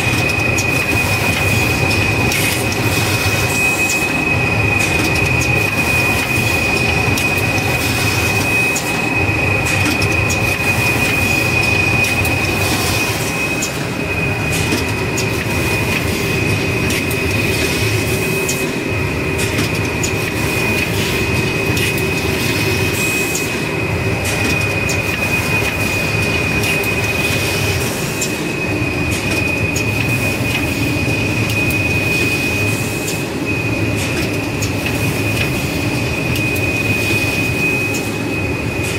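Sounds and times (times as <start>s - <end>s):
machine clatter: 0.0s - 18.7s, 19.4s - 28.4s, 29.0s - 33.2s, 33.8s - 38.2s
high-pitched machine whine: 0.0s - 38.9s
sharp clicks and knocks: 4.8s - 7.7s, 19.4s - 20.2s.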